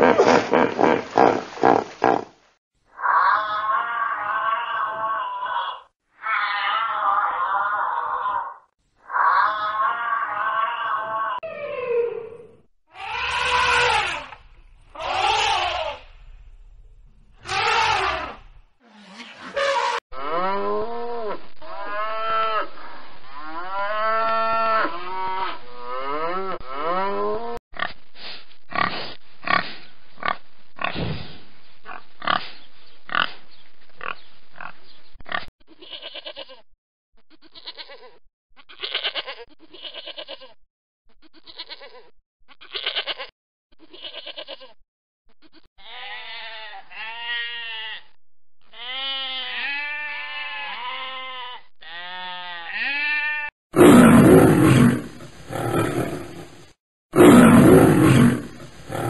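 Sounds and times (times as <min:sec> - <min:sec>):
goat bleating: 0:13.0 - 0:14.4, 0:15.0 - 0:16.1, 0:35.7 - 0:36.6, 0:37.4 - 0:40.6, 0:41.3 - 0:44.8, 0:45.5 - 0:53.5
sheep bleating: 0:13.0 - 0:14.4, 0:37.4 - 0:40.6, 0:41.3 - 0:43.3, 0:45.5 - 0:53.5
calf mooing: 0:19.6 - 0:22.7, 0:23.4 - 0:27.5, 0:45.8 - 0:48.1, 0:48.7 - 0:53.5.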